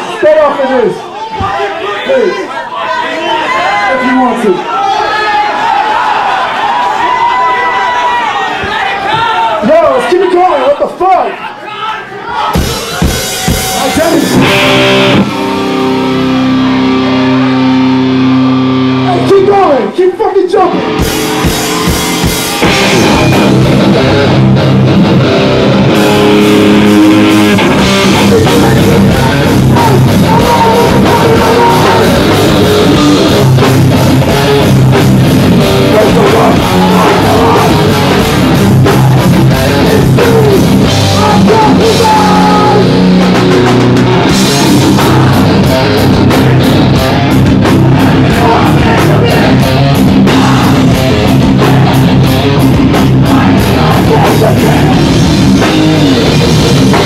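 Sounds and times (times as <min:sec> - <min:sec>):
drum kit: 0:12.5 - 0:19.3, 0:20.8 - 0:57.0
distorted electric guitars: 0:12.5 - 0:20.0, 0:20.6 - 0:57.0.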